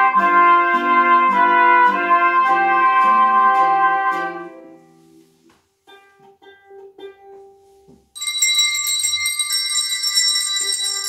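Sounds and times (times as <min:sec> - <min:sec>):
trumpet chord: 0:00.0 - 0:05.2
plucked guitar and ukulele: 0:00.0 - 0:08.1
handbells ringing: 0:08.2 - 0:11.0.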